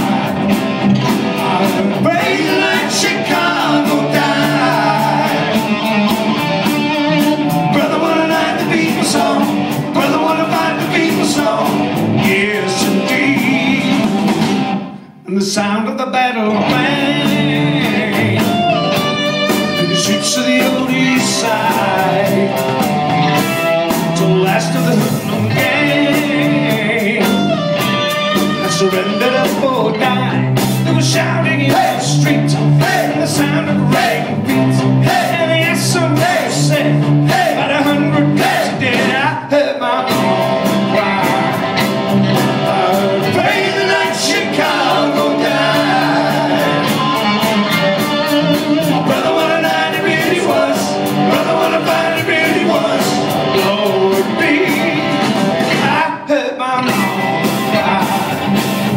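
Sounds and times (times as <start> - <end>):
person singing: 0.0 - 14.4, 15.2 - 58.9
live rock band playing: 0.0 - 15.2, 16.4 - 58.9.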